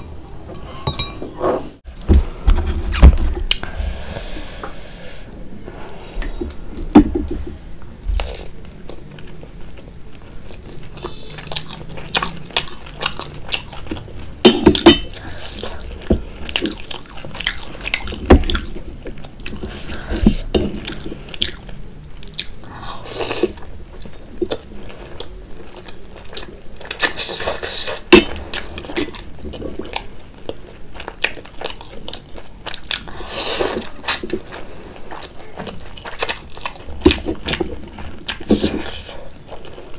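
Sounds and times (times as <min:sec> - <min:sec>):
crunchy chewing: 0:15.2 - 0:39.9.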